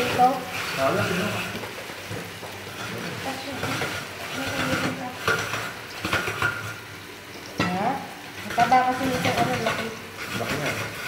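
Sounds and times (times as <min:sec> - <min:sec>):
metal utensils and cookware clattering: 0:00.0 - 0:06.8, 0:07.4 - 0:11.0.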